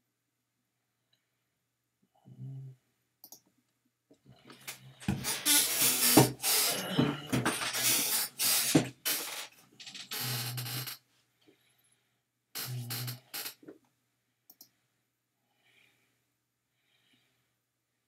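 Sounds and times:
person breathing: 0:11.4 - 0:12.3, 0:14.8 - 0:17.6
faint clicks: 0:14.5 - 0:14.7.

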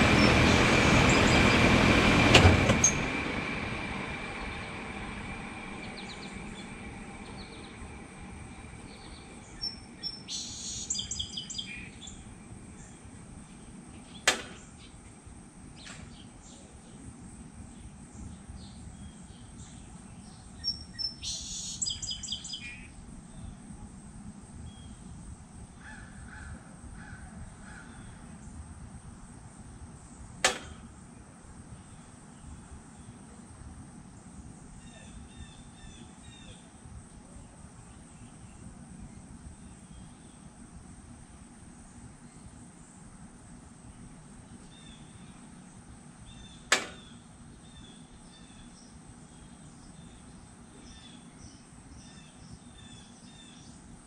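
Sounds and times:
birds chirping: 0:00.0 - 0:15.1, 0:15.7 - 0:23.7
air conditioner condenser running: 0:00.0 - 0:54.0.

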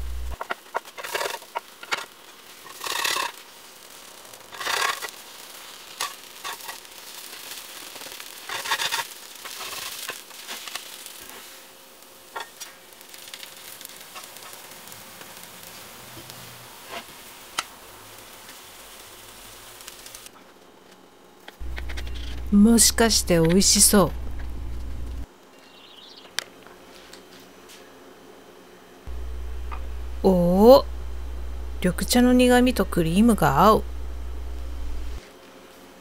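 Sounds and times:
batter sizzling in a pan: 0:00.1 - 0:20.3
spatula scraping a pan: 0:02.6 - 0:03.4, 0:04.5 - 0:05.1, 0:08.4 - 0:10.7.

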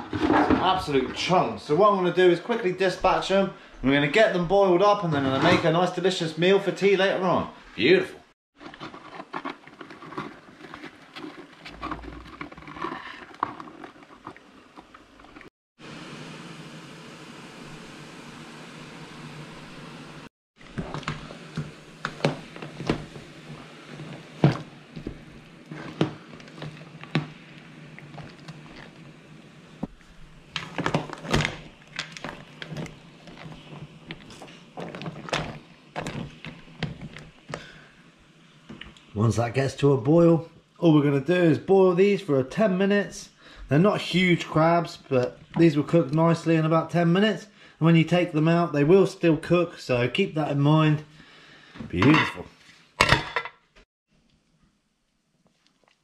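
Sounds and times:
crabs scraping in plastic bucket: 0:00.0 - 0:00.9, 0:08.6 - 0:15.5, 0:20.6 - 0:29.1, 0:30.4 - 0:37.8.

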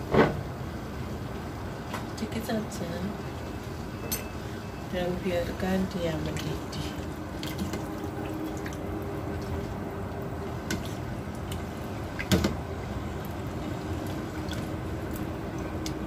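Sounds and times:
water heating in pot: 0:00.0 - 0:16.0.

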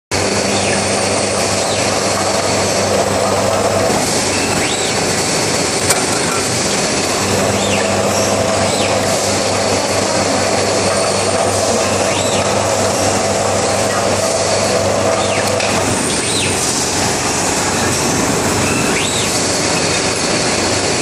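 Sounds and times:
constant hum: 0:00.1 - 0:21.0
metal-cutting machine running: 0:00.1 - 0:21.0
robot arm servo whines: 0:03.7 - 0:05.1, 0:11.0 - 0:20.0.

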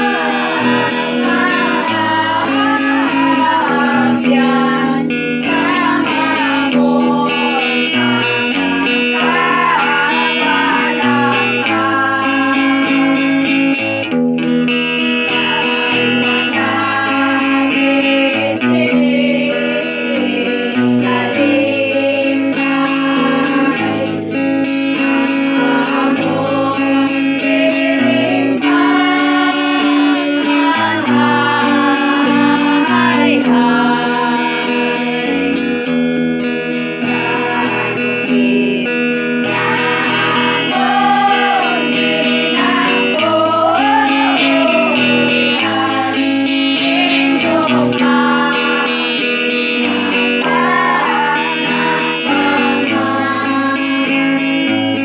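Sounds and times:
acoustic guitar strumming: 0:00.0 - 0:55.0
group singing: 0:00.0 - 0:55.0.

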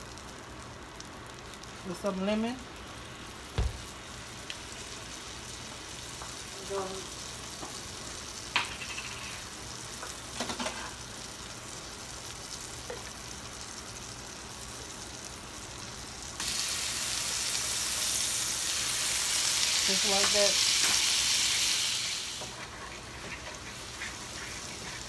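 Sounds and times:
butter sizzling in frying pan: 0:00.0 - 0:25.0
light knocks on pan: 0:03.6 - 0:03.9.

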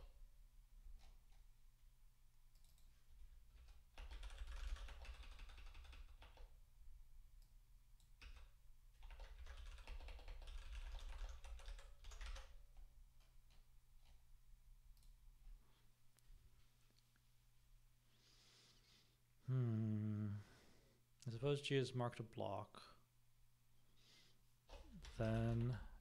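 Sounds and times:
faint keyboard typing: 0:00.9 - 0:01.5, 0:02.4 - 0:06.6, 0:07.3 - 0:14.2, 0:14.9 - 0:15.3, 0:24.6 - 0:26.0.

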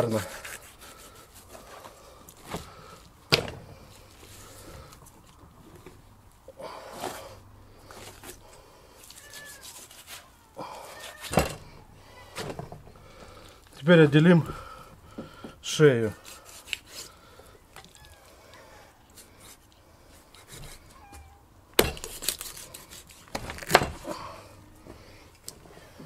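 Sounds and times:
knife slicing meat: 0:09.1 - 0:11.3, 0:16.2 - 0:17.1, 0:21.8 - 0:24.0.

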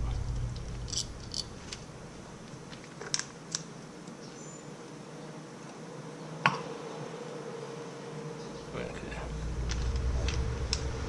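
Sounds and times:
small metal parts clicking: 0:00.0 - 0:01.8
faint steady background noise: 0:00.0 - 0:11.0.

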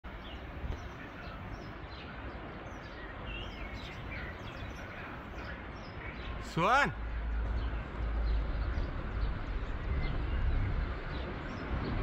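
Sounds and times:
outdoor rushing noise: 0:00.0 - 0:12.0
small birds chirping: 0:00.1 - 0:06.8.

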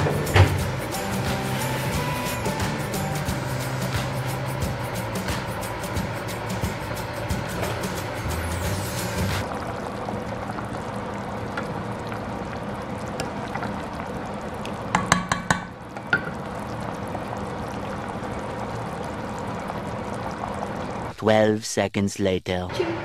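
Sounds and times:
soup bubbling in pot: 0:09.4 - 0:21.1
utensil knocking against pot: 0:14.9 - 0:16.3.

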